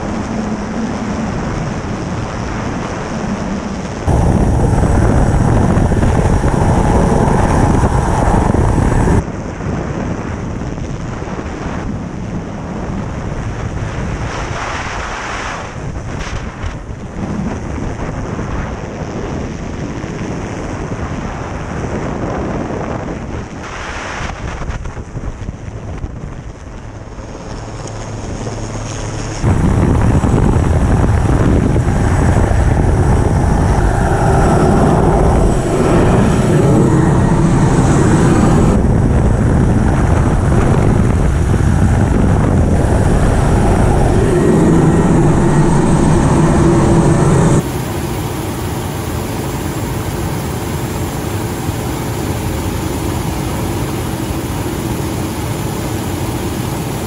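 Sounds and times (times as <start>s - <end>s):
helicopter rotor and engine: 0.0s - 9.3s, 26.6s - 57.0s.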